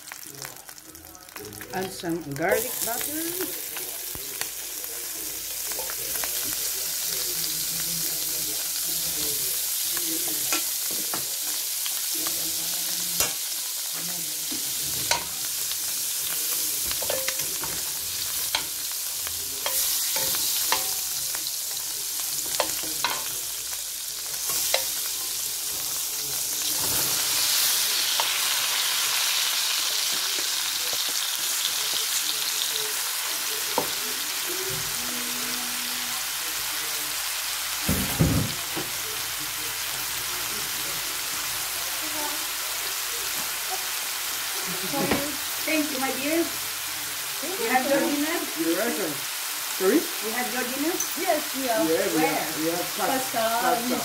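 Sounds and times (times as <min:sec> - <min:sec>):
butter sizzling in a pan: 0:00.0 - 0:54.0
metal spoon scraping a pan: 0:16.8 - 0:18.9, 0:19.6 - 0:21.2.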